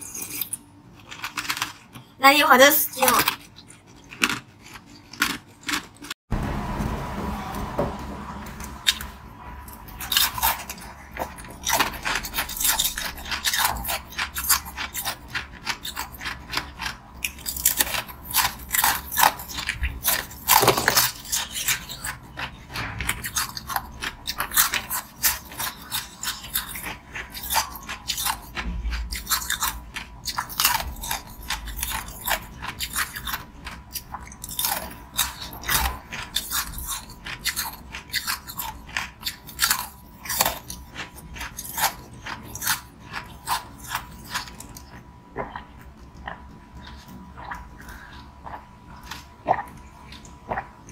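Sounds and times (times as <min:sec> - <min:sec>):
crunching ice: 0:00.0 - 0:02.0.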